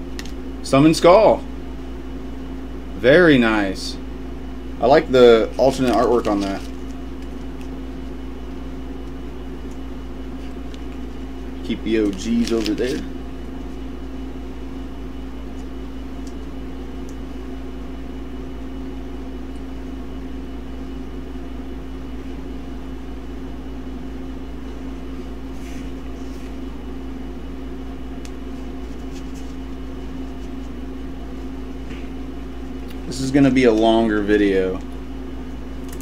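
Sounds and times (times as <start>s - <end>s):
steady machine hum: 0.0s - 36.0s
cards and plastic sleeve rustling: 5.4s - 8.2s, 9.0s - 14.0s, 28.4s - 30.8s.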